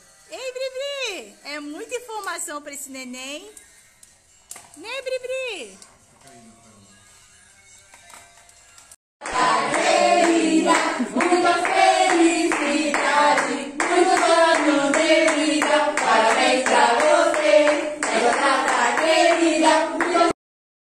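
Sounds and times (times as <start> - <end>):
group singing: 9.2 - 20.4
hands clapping in rhythm: 9.2 - 20.4.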